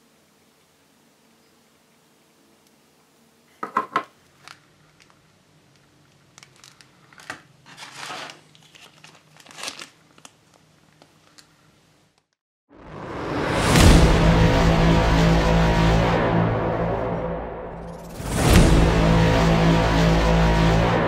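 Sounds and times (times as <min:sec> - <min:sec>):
plastic bags crinkling: 0:04.3 - 0:11.6.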